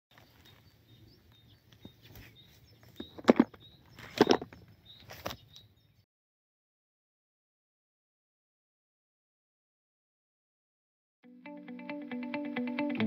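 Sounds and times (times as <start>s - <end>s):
faint bird chirps: 0.2s - 6.1s.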